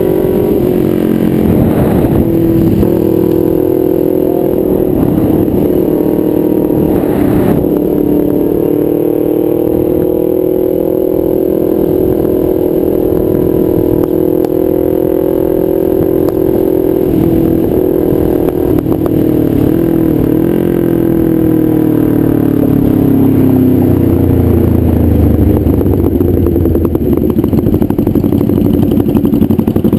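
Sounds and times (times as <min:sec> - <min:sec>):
deep low rumble: 0:00.0 - 0:20.4
motorcycle engine cruising: 0:00.0 - 0:29.9.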